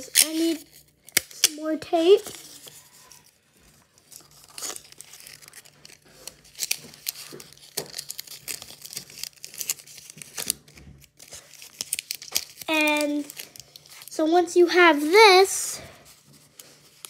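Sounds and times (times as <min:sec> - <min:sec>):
paper crinkling: 0:02.2 - 0:14.3, 0:15.8 - 0:17.0.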